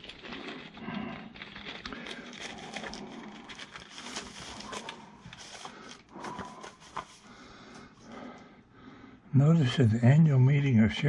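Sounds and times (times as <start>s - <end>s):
plastic wrapper crinkling: 0.0s - 7.5s.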